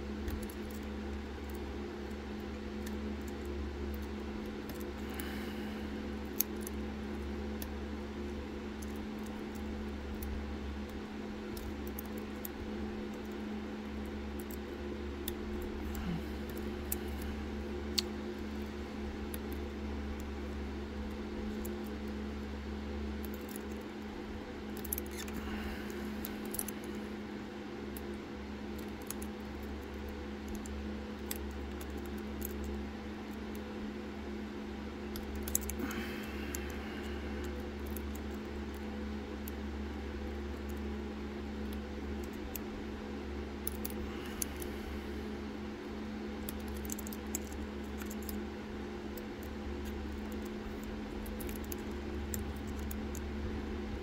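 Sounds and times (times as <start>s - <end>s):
steady low hum: 0.0s - 54.0s
lock pick scratching and clicking: 24.7s - 25.4s, 46.4s - 48.4s, 49.1s - 53.3s.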